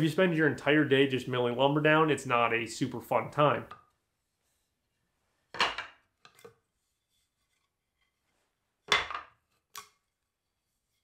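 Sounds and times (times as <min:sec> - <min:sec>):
wooden boards clacking together: 0:05.5 - 0:06.5, 0:08.9 - 0:09.5.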